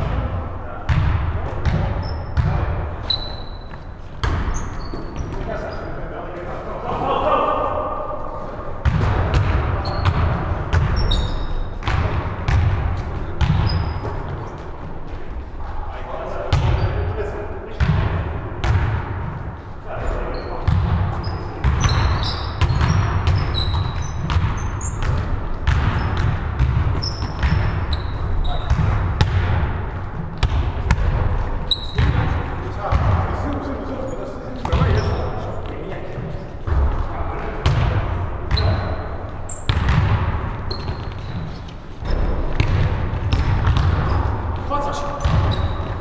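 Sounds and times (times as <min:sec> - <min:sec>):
basketball bouncing: 0:00.9 - 0:05.5, 0:08.8 - 0:14.6, 0:16.5 - 0:16.9, 0:17.8 - 0:19.4, 0:20.6 - 0:33.4, 0:36.7 - 0:46.0
sneakers squeaking on gym floor: 0:01.0 - 0:06.0, 0:09.0 - 0:15.5, 0:16.5 - 0:17.0, 0:20.0 - 0:29.4, 0:30.1 - 0:46.0.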